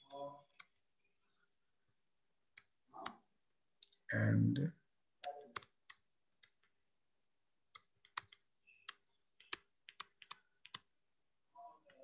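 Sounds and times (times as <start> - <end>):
stylus tapping on pen tablet: 5.2 - 6.8, 7.7 - 10.9.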